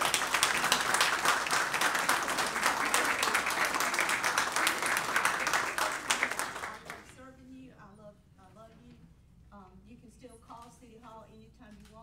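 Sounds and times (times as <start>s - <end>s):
audience applauding: 0.0s - 7.1s.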